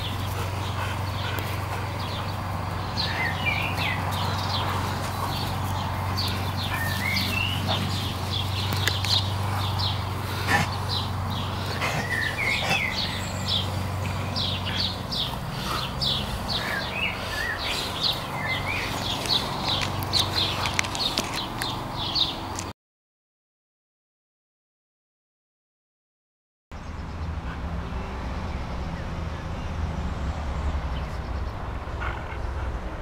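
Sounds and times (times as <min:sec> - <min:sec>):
steady low hum: 0:00.0 - 0:20.7
small birds chirping: 0:00.0 - 0:22.7, 0:26.8 - 0:33.0.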